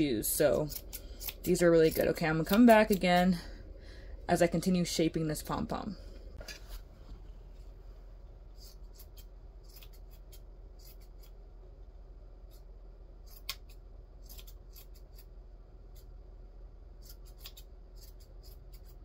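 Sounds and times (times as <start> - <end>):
scissors snipping through yarn: 0.2 - 3.3, 8.6 - 11.4, 13.2 - 15.3, 17.0 - 19.0.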